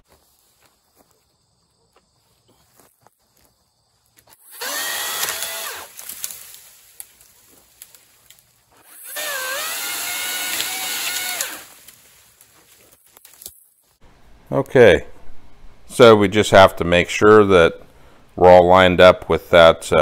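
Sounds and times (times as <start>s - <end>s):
electric pole saw whining: 4.4s - 6.2s, 8.8s - 11.9s.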